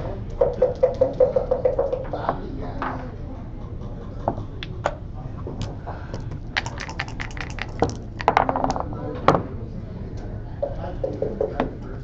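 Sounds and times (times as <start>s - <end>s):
dice rattling in a cup: 6.2s - 8.9s
checkers clacking on board: 6.6s - 8.8s.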